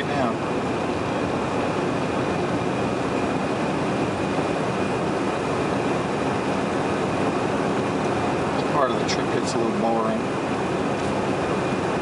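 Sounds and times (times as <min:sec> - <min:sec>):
truck cab driving noise: 0:00.0 - 0:12.0.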